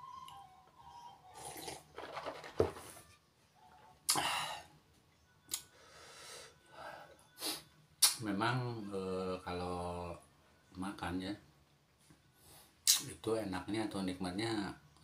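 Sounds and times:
sipping and swallowing: 0:01.4 - 0:01.9.

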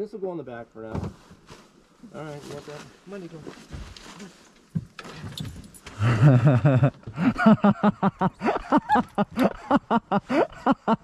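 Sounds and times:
people laughing: 0:06.0 - 0:11.0.

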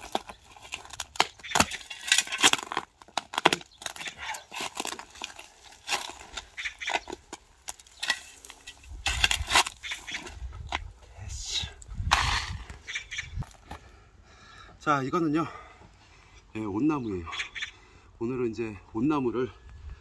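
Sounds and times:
spade scraping stony soil: 0:03.8 - 0:12.8.

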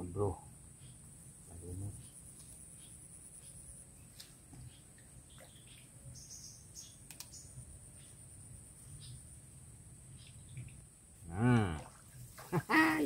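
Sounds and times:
bird chirps: 0:00.7 - 0:01.0, 0:01.7 - 0:08.3
small clicks: 0:07.0 - 0:07.4.

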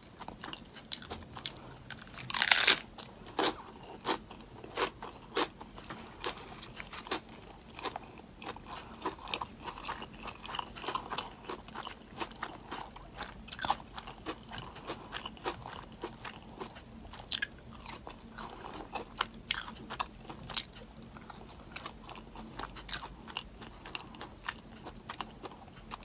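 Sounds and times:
person chewing crunchy food: 0:00.0 - 0:26.0.

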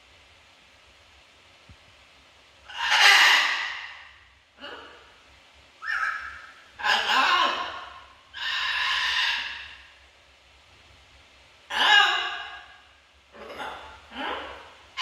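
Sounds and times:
macaw raspy calls: 0:02.7 - 0:04.8, 0:05.8 - 0:09.9, 0:11.7 - 0:15.0.

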